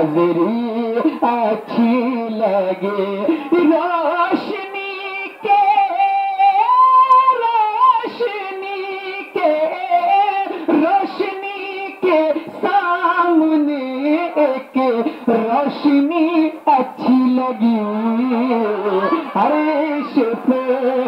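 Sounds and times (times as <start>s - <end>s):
person singing devotional melody: 0.0s - 21.0s.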